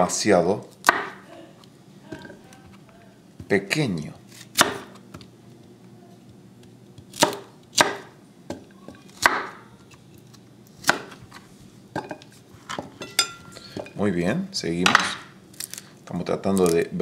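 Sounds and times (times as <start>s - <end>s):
knife chopping on cutting board: 0.8s - 1.2s, 4.4s - 5.2s, 7.0s - 9.6s, 10.8s - 11.2s.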